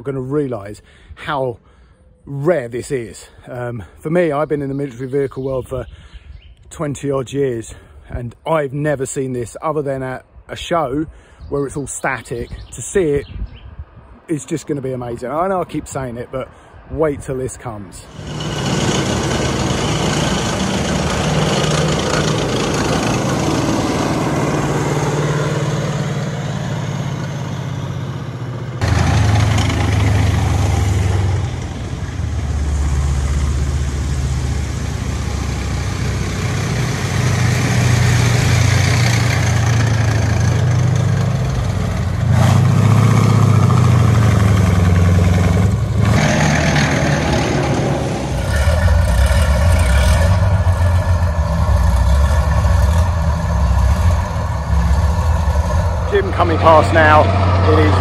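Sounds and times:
tank engines droning: 0:18.0 - 0:58.0.

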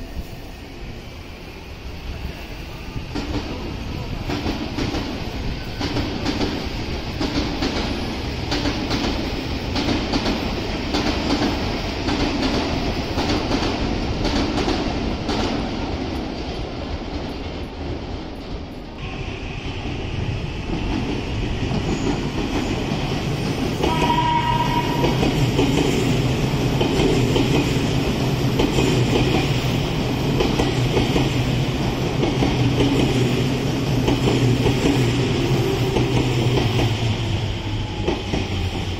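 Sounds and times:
train hum and wheel rumble: 0:00.0 - 0:38.9
train horn blast: 0:19.0 - 0:19.8, 0:23.8 - 0:25.4.

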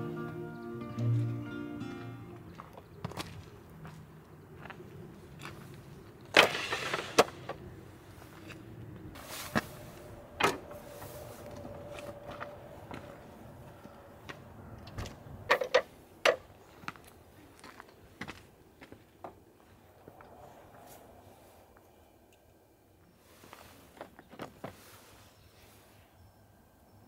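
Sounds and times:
scraping rustle: 0:09.2 - 0:10.1.

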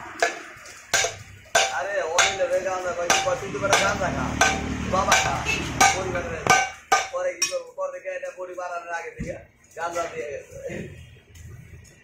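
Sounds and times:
hammer striking hot iron on anvil: 0:00.2 - 0:07.6.

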